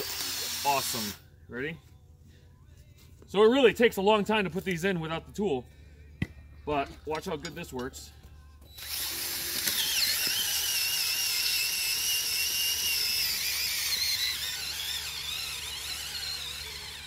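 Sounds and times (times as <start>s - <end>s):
cordless drill whining: 8.7s - 17.0s.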